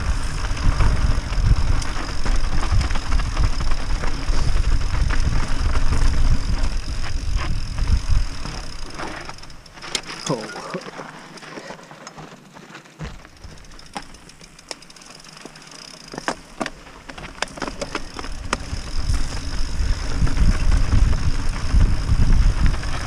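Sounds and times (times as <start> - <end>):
wind noise: 0.0 - 10.0, 17.2 - 23.0
bike and stones rattling: 0.0 - 23.0
bike tyres rumbling on dirt: 0.0 - 23.0.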